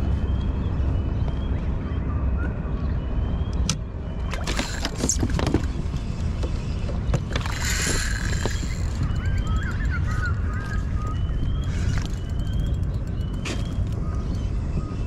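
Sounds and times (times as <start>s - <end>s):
water and wind rumble: 0.0s - 15.0s
fishing gear clicks and knocks: 4.3s - 14.4s.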